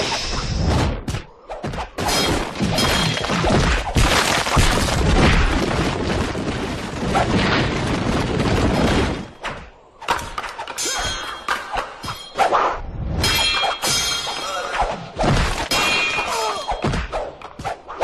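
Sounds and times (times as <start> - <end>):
rock crashing and shattering: 2.8 - 9.3.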